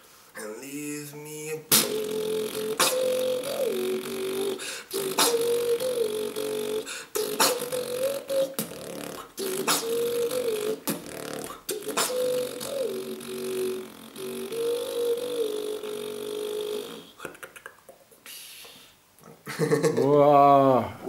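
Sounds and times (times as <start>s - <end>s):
hummed melody: 0.4s - 17.2s
beatbox mouth clicks and snares: 1.5s - 19.4s.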